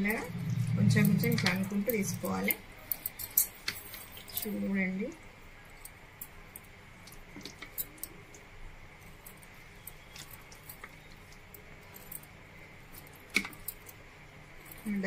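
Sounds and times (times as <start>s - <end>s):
moist pudding squishing: 5.8s - 14.0s.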